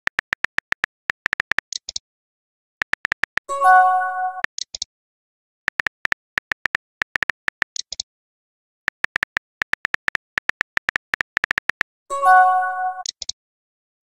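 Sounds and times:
phone keyboard typing clicks: 0.0s - 2.0s, 2.8s - 3.5s, 5.7s - 8.0s, 8.9s - 11.9s
message chime: 12.1s - 13.0s.

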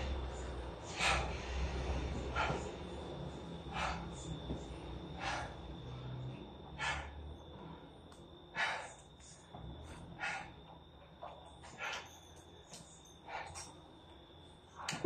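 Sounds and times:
person breathing hard: 0.0s - 10.6s, 13.3s - 13.8s.

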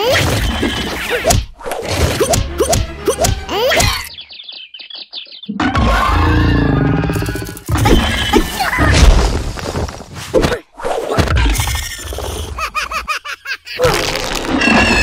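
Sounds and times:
rising and falling squeaks: 5.4s - 8.9s.

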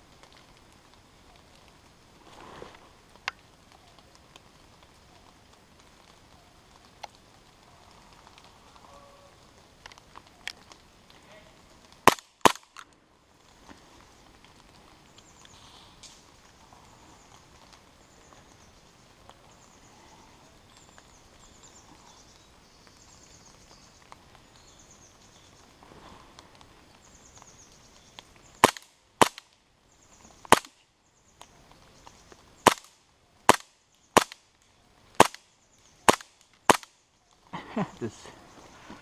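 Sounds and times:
faint bird chirping: 2.4s - 11.9s, 13.5s - 28.7s, 29.7s - 36.1s, 37.0s - 39.0s
airsoft gun shots: 12.1s - 12.7s, 28.6s - 29.4s, 32.6s - 32.9s, 33.5s - 34.4s, 35.2s - 35.4s, 36.1s - 36.9s.

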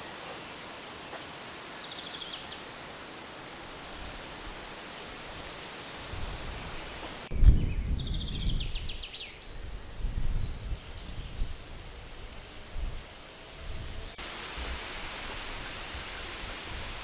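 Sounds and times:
leaves rustling: 0.0s - 17.0s
wind rumbling on microphone: 3.8s - 17.0s.

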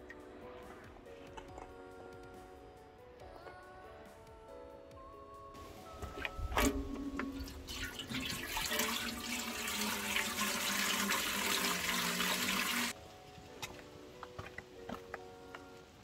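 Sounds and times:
faint music: 0.0s - 16.0s
tap water rushing: 6.0s - 13.0s.

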